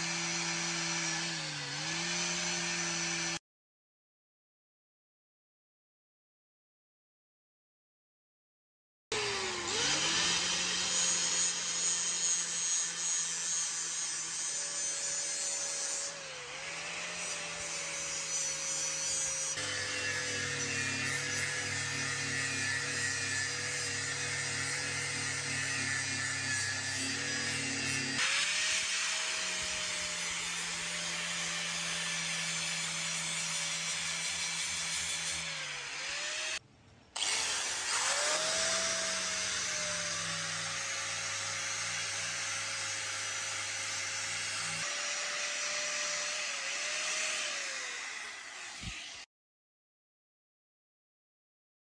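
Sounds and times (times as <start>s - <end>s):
angle grinder sanding metal: 9.2s - 36.6s, 37.2s - 49.3s.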